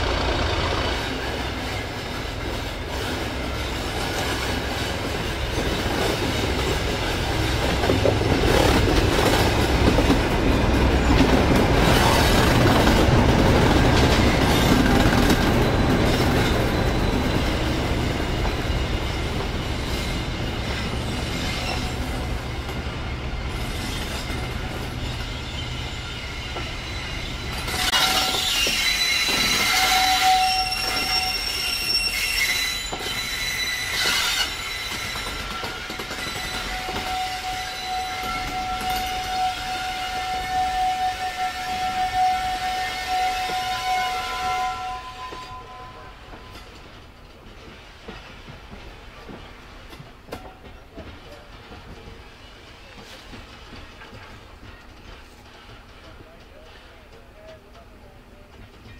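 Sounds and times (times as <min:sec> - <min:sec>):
diesel locomotive engine hum: 0:00.0 - 0:28.0
train wheels clicking over rail joints: 0:00.1 - 0:40.5, 0:45.3 - 0:58.9
high-pitched wheel squeal: 0:14.3 - 0:46.6.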